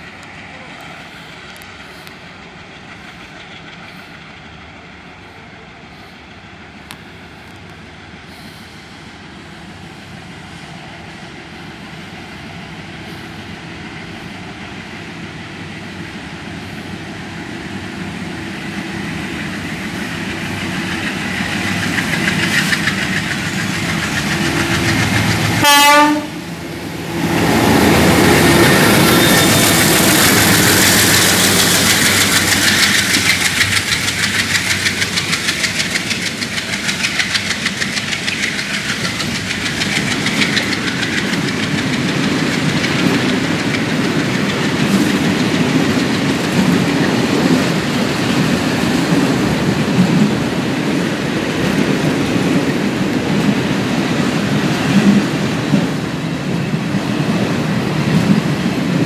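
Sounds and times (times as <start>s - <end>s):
diesel locomotive engine: 0.0s - 59.0s
train horn blast: 25.6s - 26.5s
wheels clattering over rail joints: 28.6s - 56.0s.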